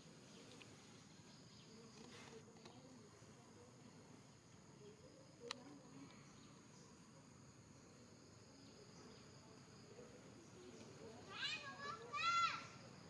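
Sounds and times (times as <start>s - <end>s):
insect chorus: 0.0s - 13.0s.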